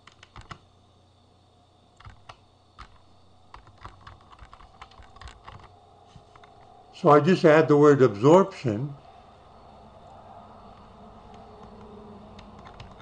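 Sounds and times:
typing on computer keyboard: 0:00.0 - 0:00.6, 0:02.0 - 0:05.7, 0:10.8 - 0:13.0.

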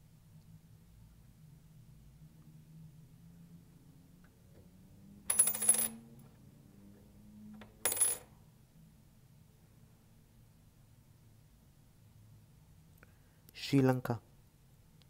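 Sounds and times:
coins clinking: 0:05.3 - 0:06.1, 0:07.8 - 0:08.3.

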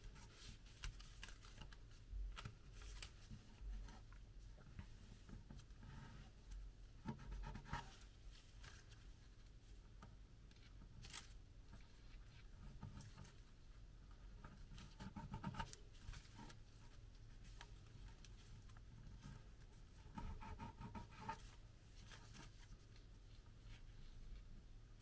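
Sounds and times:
paper crinkling and rustling: 0:00.1 - 0:04.1, 0:10.5 - 0:13.5, 0:21.3 - 0:24.4.

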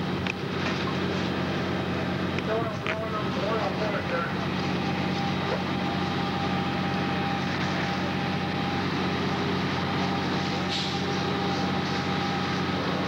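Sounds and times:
fire truck engines droning: 0:00.0 - 0:13.0.

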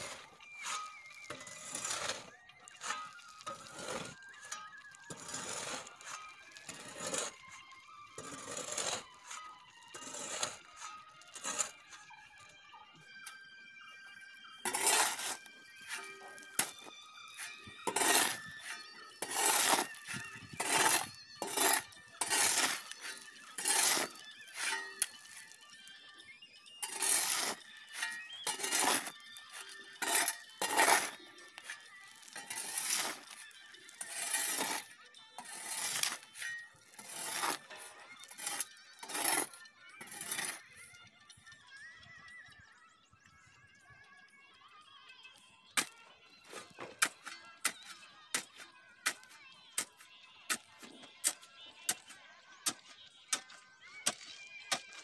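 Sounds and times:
stones crunching and clinking: 0:00.0 - 0:07.4, 0:14.7 - 0:25.7, 0:26.8 - 0:40.6
shovel scraping on concrete: 0:00.0 - 0:12.0, 0:14.6 - 0:25.6, 0:26.8 - 0:40.6, 0:45.8 - 0:55.0.

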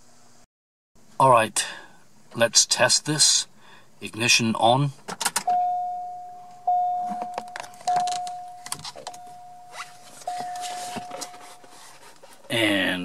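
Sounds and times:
dashboard warning chime: 0:05.5 - 0:12.0.

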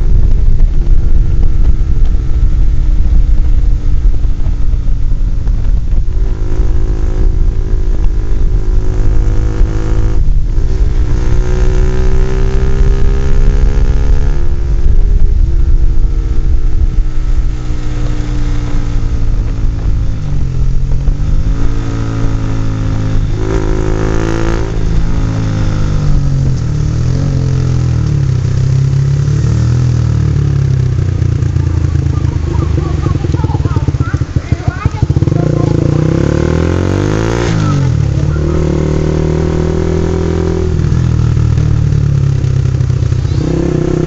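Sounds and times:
motorcycle engine revving: 0:00.0 - 0:44.0
wind rumble on microphone: 0:00.0 - 0:44.0.

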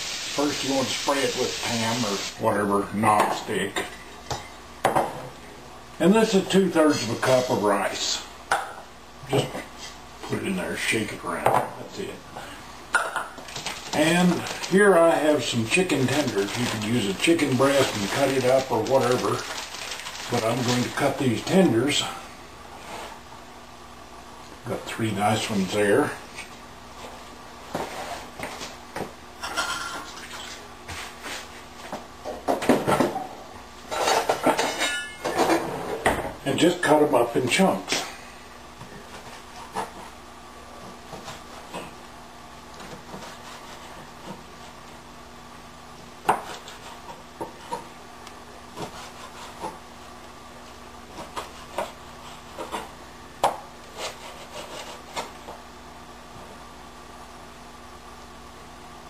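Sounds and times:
knife scraping: 0:48.8 - 0:49.8, 0:53.9 - 0:55.4.

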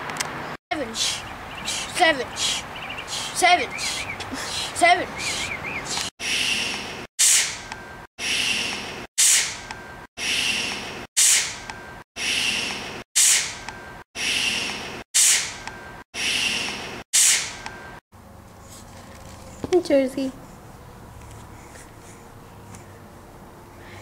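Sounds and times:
boy shushing: 0:00.8 - 0:06.1.

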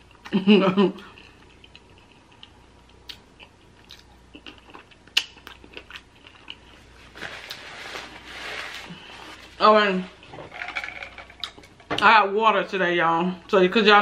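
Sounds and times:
paper napkin rustle: 0:06.9 - 0:10.1.

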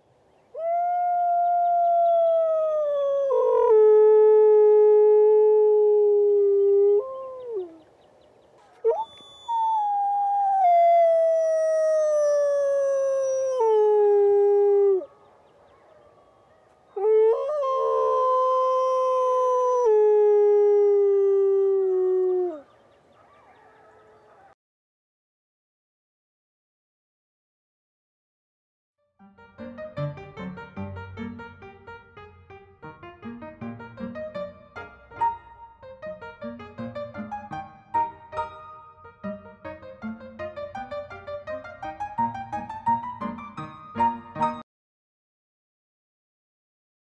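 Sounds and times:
wolf howling: 0:00.6 - 0:07.8, 0:08.6 - 0:15.1, 0:16.9 - 0:24.6.

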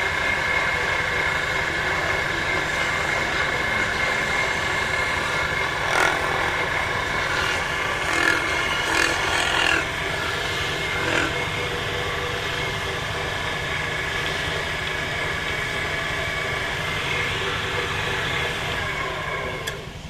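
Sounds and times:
wood lathe running: 0:00.0 - 0:20.0
hand tool scraping turning wood: 0:00.7 - 0:15.0.

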